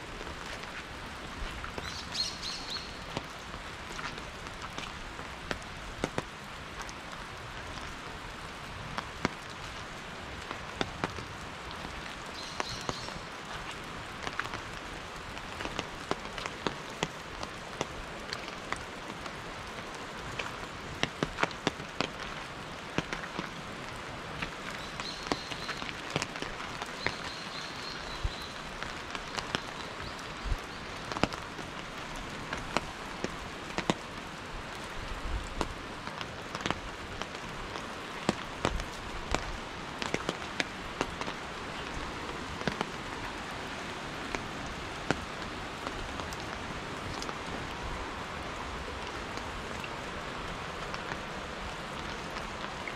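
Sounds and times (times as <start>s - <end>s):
large raindrops tapping: 0.0s - 52.9s
steady rain: 0.0s - 52.9s.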